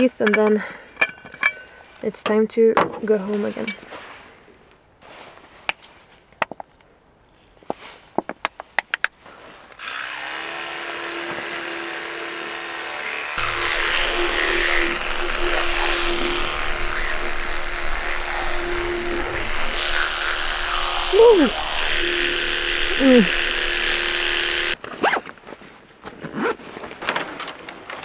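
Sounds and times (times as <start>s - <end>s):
electric toothbrush humming: 9.8s - 24.8s
low rumble: 13.4s - 24.8s.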